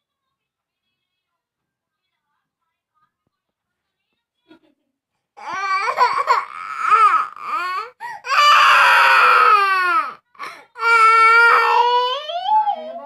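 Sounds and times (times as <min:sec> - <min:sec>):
toddler crying: 0:05.4 - 0:13.0.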